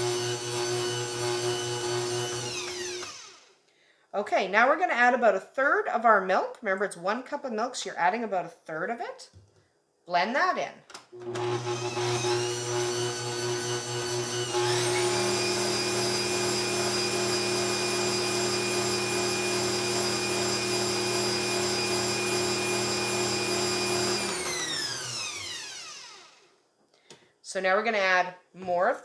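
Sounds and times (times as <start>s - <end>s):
stand mixer motor whining: 0.0s - 3.5s, 11.2s - 26.4s.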